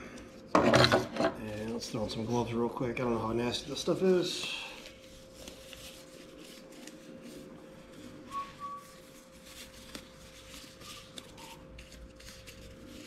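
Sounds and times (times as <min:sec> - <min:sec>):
faint steady hum: 0:00.0 - 0:13.0
gloves rustling: 0:01.4 - 0:13.0.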